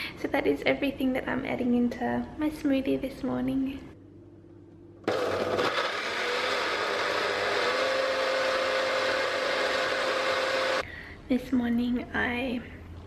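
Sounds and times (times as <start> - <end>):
blender motor whine: 5.0 - 10.8.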